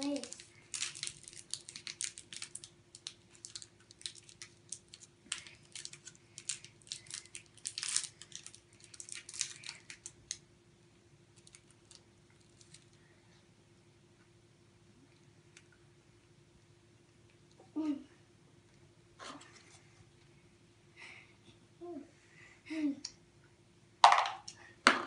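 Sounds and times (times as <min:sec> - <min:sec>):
plastic wrapper crinkling: 0:00.0 - 0:10.4, 0:11.4 - 0:13.0.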